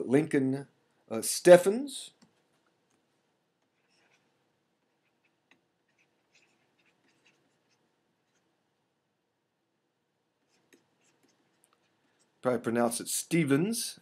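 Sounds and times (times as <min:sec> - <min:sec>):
stylus scratching on tablet: 0:03.6 - 0:08.5, 0:10.4 - 0:12.4.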